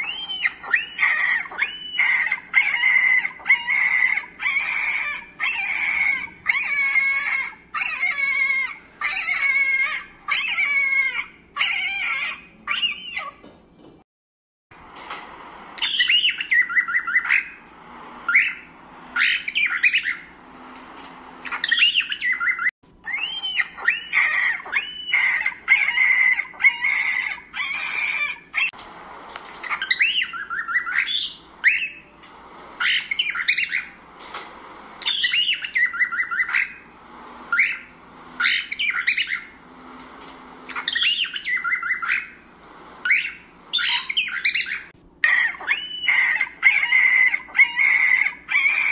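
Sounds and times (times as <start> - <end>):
cockatiels chattering: 0.0 - 13.4, 15.8 - 17.6, 18.3 - 20.3, 21.4 - 28.8, 29.6 - 32.1, 32.8 - 34.0, 35.0 - 36.9, 37.5 - 39.6, 40.7 - 42.4, 43.0 - 48.9
cockatiels squawking: 0.0 - 13.5, 15.8 - 20.3, 21.4 - 28.8, 29.6 - 32.2, 32.8 - 34.0, 35.0 - 36.9, 37.5 - 39.6, 40.7 - 42.4, 43.0 - 48.9.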